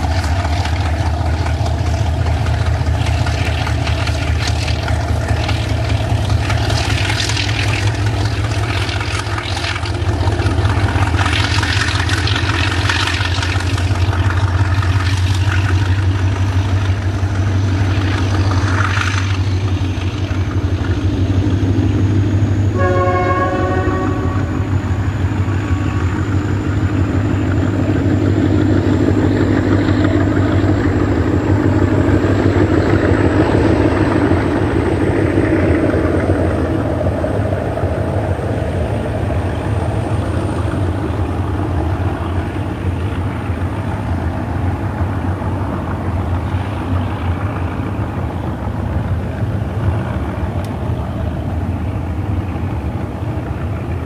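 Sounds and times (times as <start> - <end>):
wagons clattering over rails: 0.0 - 21.9
diesel locomotive engine running: 0.0 - 54.0
train horn: 22.7 - 26.5.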